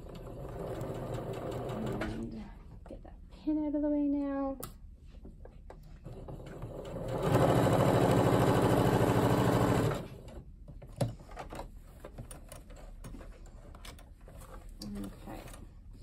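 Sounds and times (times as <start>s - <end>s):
sewing machine stitching: 0.0s - 2.3s, 6.0s - 10.4s.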